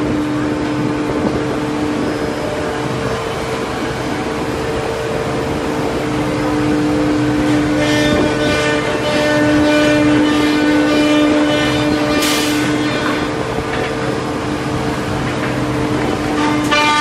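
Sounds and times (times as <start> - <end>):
workshop machinery hiss: 12.2 - 12.8.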